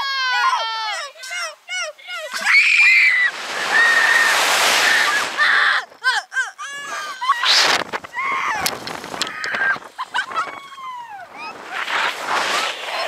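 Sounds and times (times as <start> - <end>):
girls screaming: 0.0 - 1.2, 2.1 - 11.6
wind rushing over microphone: 3.2 - 6.0, 6.8 - 13.0.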